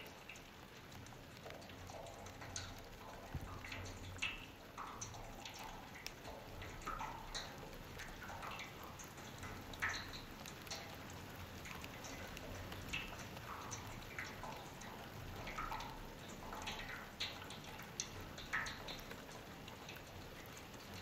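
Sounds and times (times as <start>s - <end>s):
faint water trickle: 0.0s - 21.0s
water dripping into sewer: 0.0s - 21.0s.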